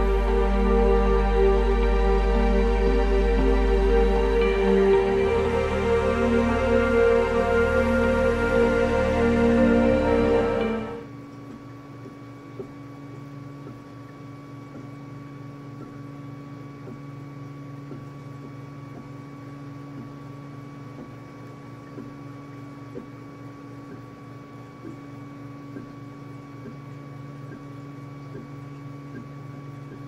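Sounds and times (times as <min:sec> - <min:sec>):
printer motors humming and whining: 0:00.0 - 0:12.7
faint ticks: 0:11.3 - 0:15.1, 0:15.7 - 0:19.3, 0:20.9 - 0:30.0.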